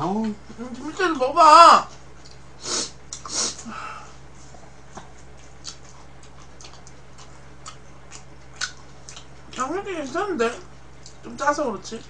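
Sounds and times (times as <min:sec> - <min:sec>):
sharp nose sniffs: 0:02.6 - 0:03.6.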